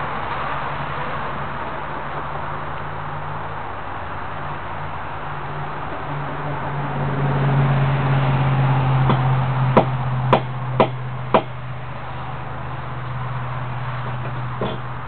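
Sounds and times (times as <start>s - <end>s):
sharp knocks of stone pieces: 14.6s - 14.9s.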